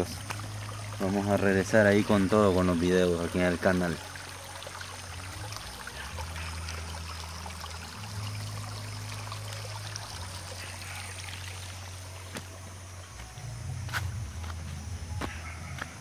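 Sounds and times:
creek trickling over stones: 0.0 - 14.6
steady low hum: 4.0 - 16.0.

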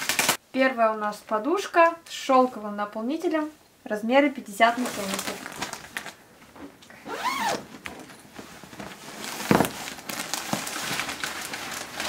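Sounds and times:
plastic bag rustling: 4.6 - 12.0
zipper rasping open: 6.6 - 7.7.

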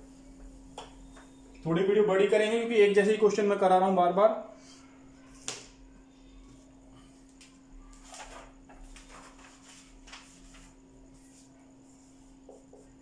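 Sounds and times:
steady low hum: 0.0 - 13.0
paper rustling: 7.8 - 11.5.

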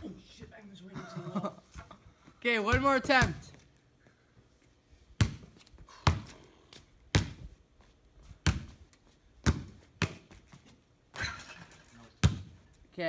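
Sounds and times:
ball rattling hoop: 2.6 - 3.6, 11.1 - 12.6
basketball bouncing on stone: 2.7 - 3.6, 7.1 - 7.4, 8.4 - 8.8, 9.4 - 10.4, 12.2 - 12.6.

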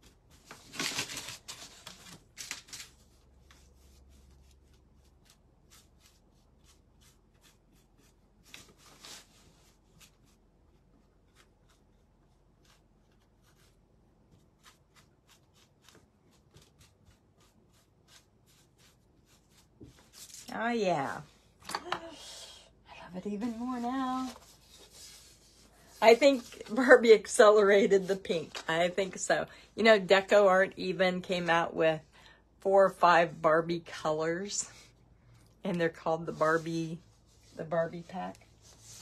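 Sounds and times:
paintbrush stroking on wood: 14.4 - 21.4, 23.2 - 29.2, 35.9 - 39.0.

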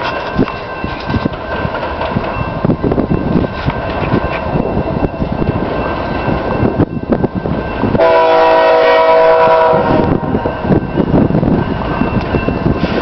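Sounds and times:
locomotive air horn chord: 8.0 - 10.3.

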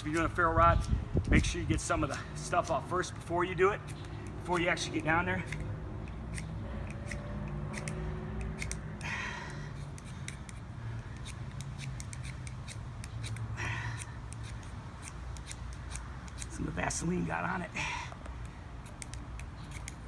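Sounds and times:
ferro rod scraped by striker: 3.6 - 17.2, 18.4 - 20.0.

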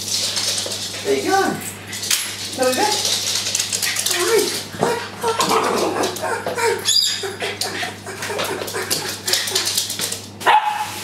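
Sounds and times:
dog whining and whimpering: 4.9 - 7.4.

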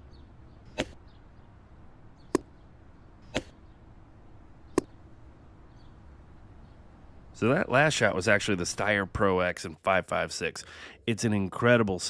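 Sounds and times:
faint background noise: 0.0 - 12.0.

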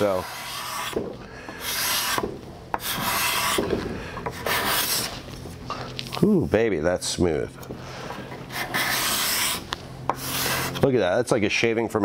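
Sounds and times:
card scraper scraping wood: 0.0 - 5.2, 8.2 - 10.9.

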